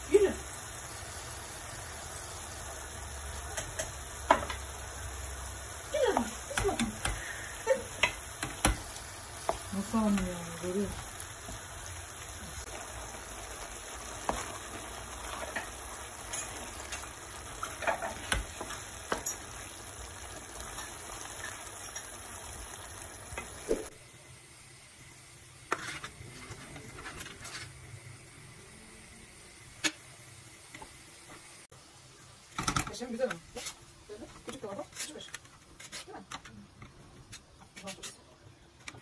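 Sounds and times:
sauce sizzling in a pan: 0.0s - 35.3s
wooden spoon scraping a pan: 14.2s - 19.6s, 25.7s - 27.8s, 33.4s - 36.3s.

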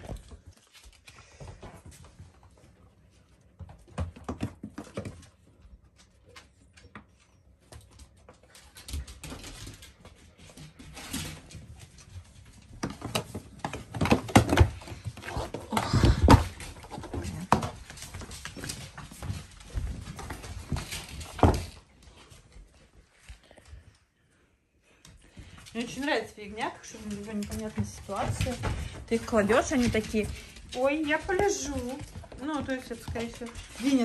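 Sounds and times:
hooves tapping on wooden floor: 25.0s - 34.0s.

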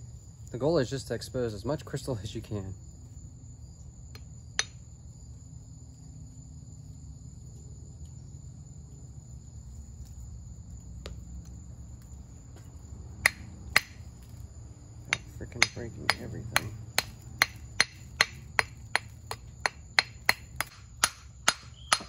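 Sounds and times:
insects trilling: 0.0s - 22.0s
hammer striking shell: 13.2s - 14.0s, 15.1s - 22.0s.

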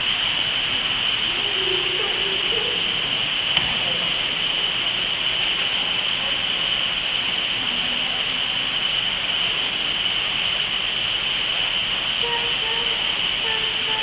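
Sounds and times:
indoor rainforest ambient hiss: 0.0s - 14.0s
faint voices murmuring: 0.6s - 10.1s, 12.2s - 14.0s.

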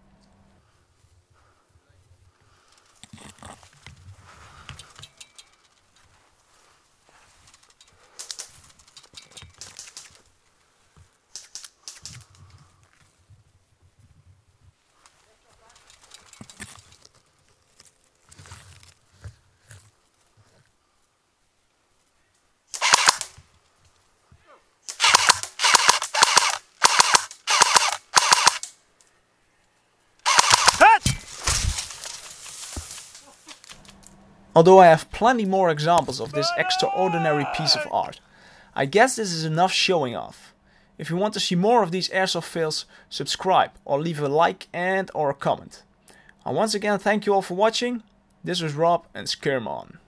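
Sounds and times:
branches brushing and rustling: 2.2s - 24.4s, 31.0s - 34.2s
airsoft rifle bursts: 22.7s - 23.4s, 24.9s - 28.8s, 30.2s - 31.0s
footsteps crunching on dry leaves: 31.1s - 33.8s.

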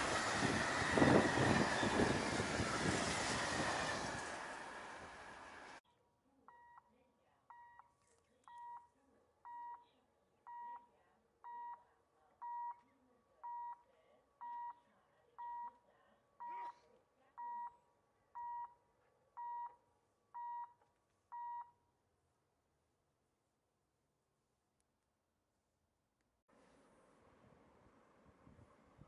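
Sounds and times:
level crossing warning beeps: 6.5s - 6.9s, 7.5s - 7.9s, 8.5s - 9.8s, 10.5s - 11.8s, 12.4s - 12.8s, 13.4s - 13.8s, 14.4s - 14.8s, 15.4s - 15.8s, 16.4s - 16.8s, 17.4s - 17.8s, 18.4s - 18.8s, 19.4s - 19.8s, 20.4s - 21.7s.

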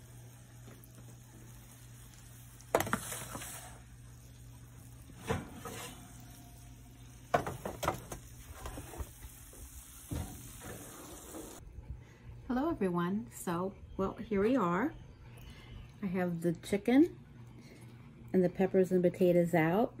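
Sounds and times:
metal pan clunking and scraping: 5.2s - 6.3s, 7.3s - 8.9s
steady low hum: 11.5s - 20.0s.

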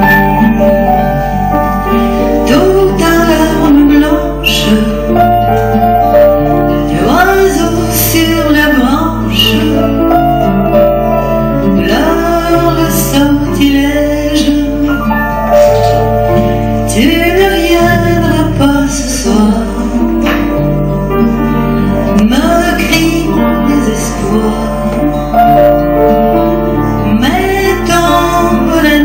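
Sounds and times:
acoustic guitar: 0.0s - 29.0s
piano: 0.0s - 29.0s
woman singing: 2.3s - 21.0s, 21.9s - 29.0s.

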